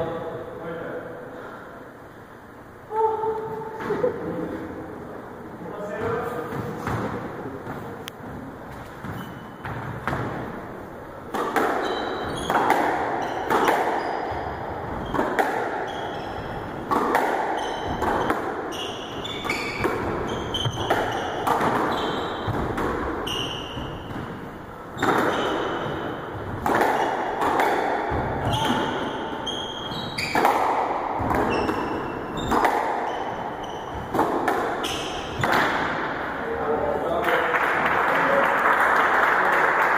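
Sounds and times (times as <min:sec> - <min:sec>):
sneakers squeaking on wooden floor: 0:05.9 - 0:36.3
squash ball hitting rackets and walls: 0:05.9 - 0:36.6.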